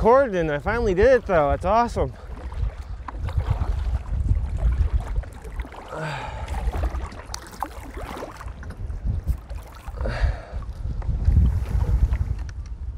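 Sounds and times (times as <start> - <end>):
paddle splashes: 0.0 - 12.5
water sloshing around kayak: 0.0 - 12.6
wind buffeting microphone: 0.0 - 12.9.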